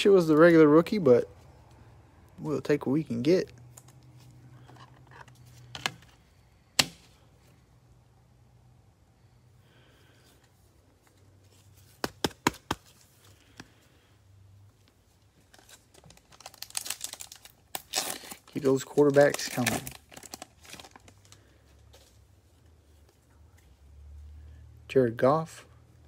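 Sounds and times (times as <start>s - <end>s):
handling of card: 3.6s - 7.1s.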